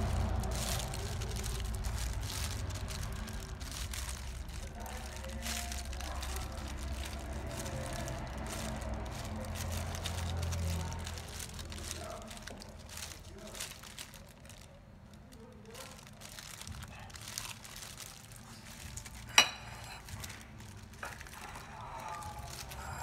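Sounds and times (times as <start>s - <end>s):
plastic glove crinkling: 0.0s - 23.0s.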